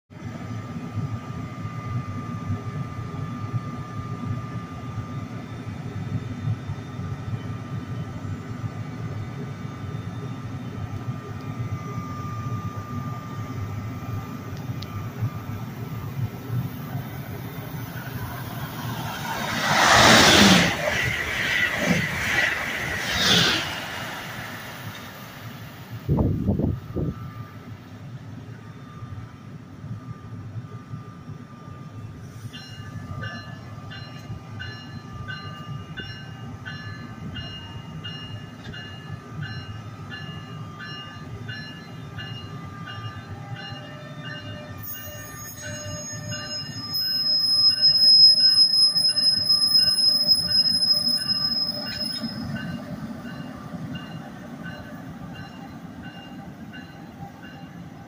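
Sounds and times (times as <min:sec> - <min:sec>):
train wheels rumbling: 0:13.3 - 0:27.3
high wheel squeal: 0:44.8 - 0:52.8.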